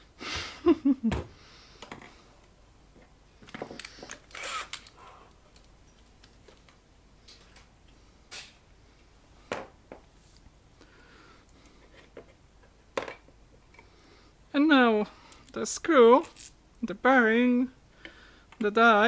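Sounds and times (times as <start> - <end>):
small metal parts clicking and rattling: 3.4 - 6.4.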